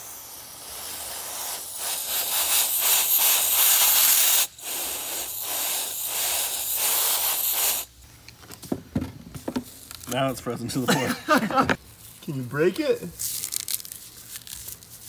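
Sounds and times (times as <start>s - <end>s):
air duster spraying hiss: 0.0s - 8.0s.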